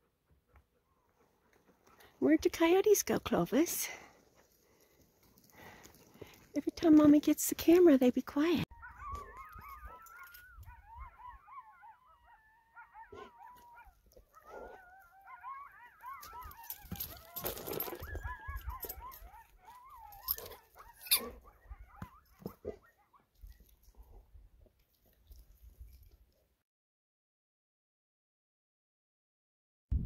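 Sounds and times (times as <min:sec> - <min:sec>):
coyotes howling and yipping: 0:08.7 - 0:23.9.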